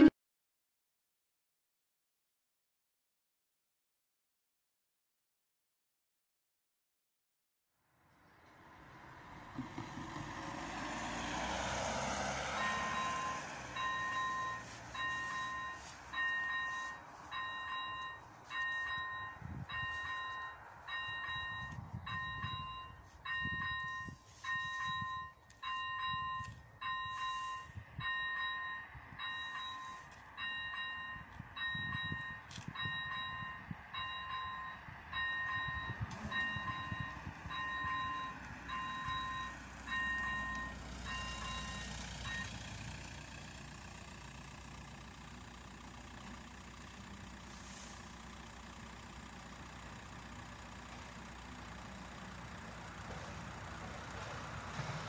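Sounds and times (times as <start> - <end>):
car driving past: 8.1 - 18.1, 52.8 - 55.0
level crossing warning bell: 12.3 - 53.0.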